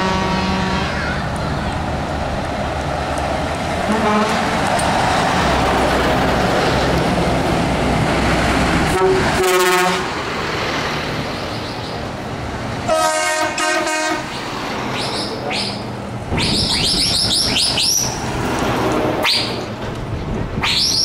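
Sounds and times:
truck air horn blasts: 0:00.0 - 0:01.0, 0:03.9 - 0:04.4, 0:08.9 - 0:10.1, 0:12.9 - 0:14.3
trucks driving past: 0:00.0 - 0:21.0.

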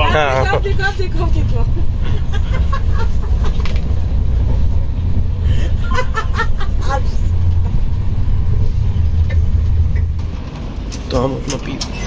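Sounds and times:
train rumble inside coach: 0:00.0 - 0:12.0
woman laughing: 0:05.6 - 0:07.2.

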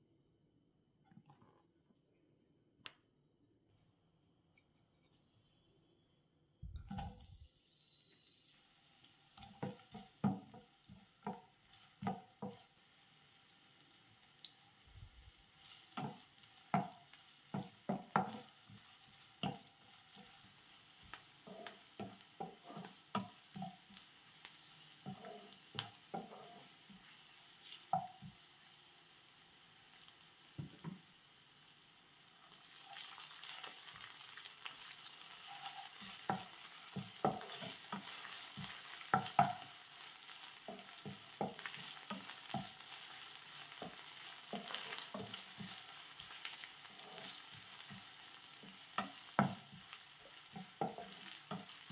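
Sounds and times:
oil sizzling in frying pan: 0:06.9 - 0:51.9
utensil knocks and scrapes on pan: 0:36.2 - 0:39.6, 0:50.5 - 0:51.7.

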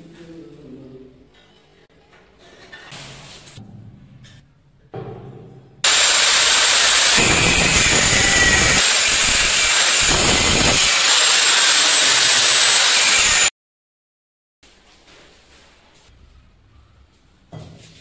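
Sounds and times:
angle grinder cutting stone: 0:05.8 - 0:13.5.

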